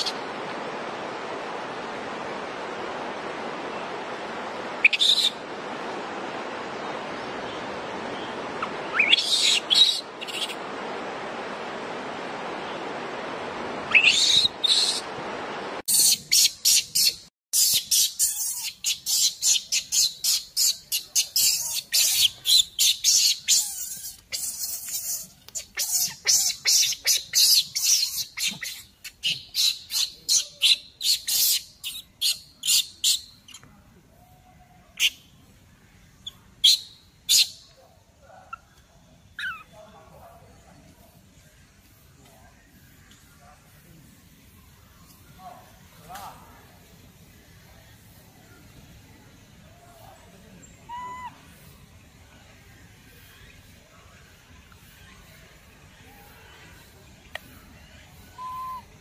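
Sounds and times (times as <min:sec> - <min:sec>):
steady hiss: 0:00.0 - 0:38.4, 0:40.0 - 0:59.0
baby monkey crying: 0:15.9 - 0:32.8, 0:39.4 - 0:39.7, 0:50.9 - 0:51.4, 0:58.4 - 0:58.9.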